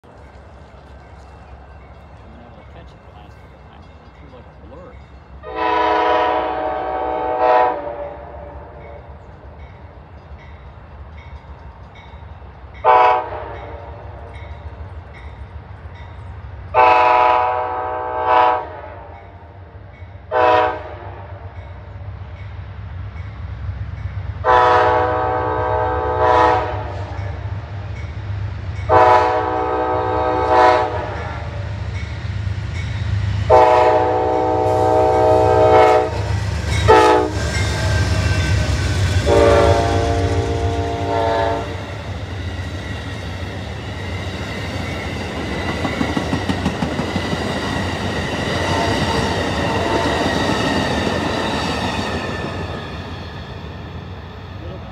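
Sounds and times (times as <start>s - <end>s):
diesel locomotive rumble: 0.0s - 18.1s, 21.4s - 54.9s
locomotive air horn blasts: 5.4s - 9.0s, 12.8s - 14.2s, 16.8s - 19.2s, 20.3s - 21.5s, 24.4s - 27.2s, 28.9s - 31.6s, 33.5s - 38.2s, 39.2s - 41.9s
train wheels clickety-clack: 30.1s - 54.8s.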